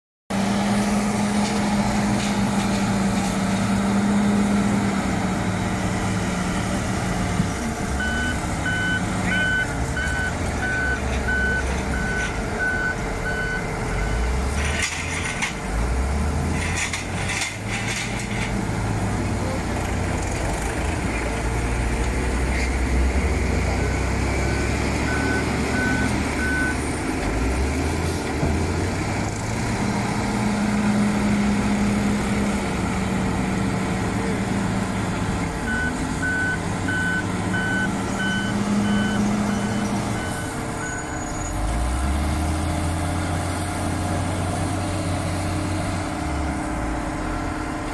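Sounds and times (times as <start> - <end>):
diesel engines running: 0.3 - 47.9
reversing alarm beeping: 8.0 - 14.2, 23.8 - 26.8, 35.7 - 41.4.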